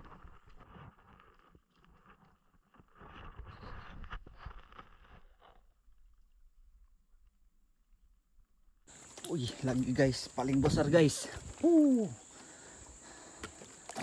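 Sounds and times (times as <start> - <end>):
faint water splashing: 11.2 - 14.0.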